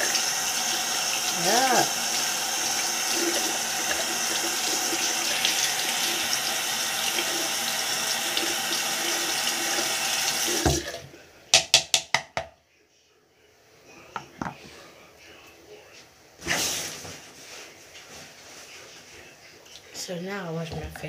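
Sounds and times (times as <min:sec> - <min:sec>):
sink tap running: 0:00.0 - 0:11.0.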